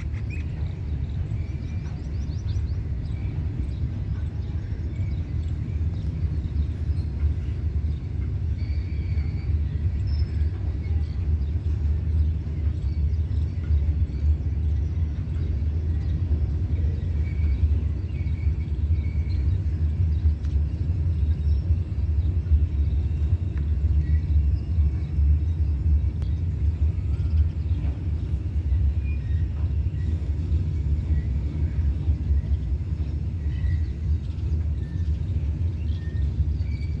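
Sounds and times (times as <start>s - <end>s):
train wheels rumbling on track: 0.0s - 37.0s.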